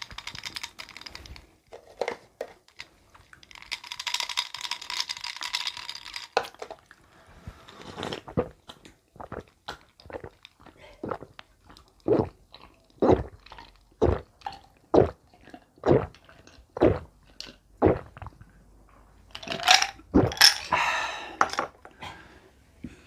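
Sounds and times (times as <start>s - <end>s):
person gulping drink: 7.8s - 18.6s, 19.3s - 21.9s.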